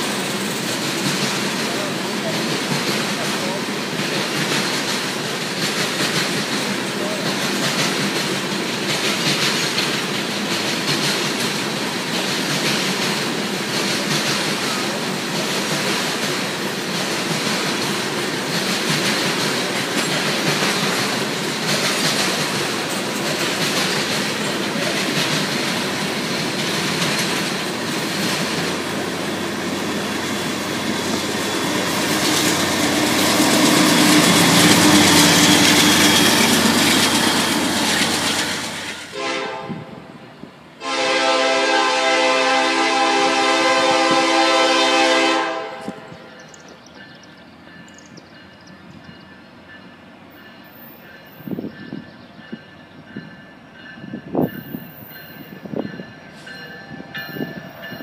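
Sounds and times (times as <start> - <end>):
clickety-clack over rail joints: 0.0 - 39.2
freight train wheels rumbling on rails: 0.0 - 58.0
train horn: 39.0 - 40.1, 40.8 - 46.4.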